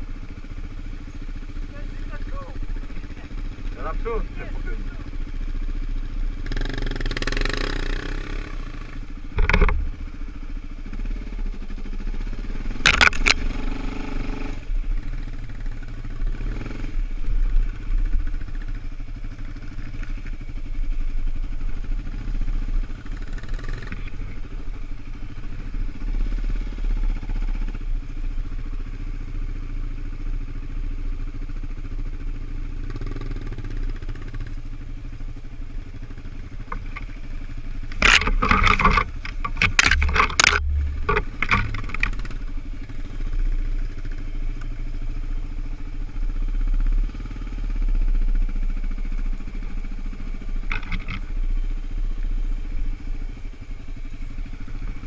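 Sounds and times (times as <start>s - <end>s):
quad engines running: 0.0s - 55.0s
sharp knocks: 38.0s - 42.4s.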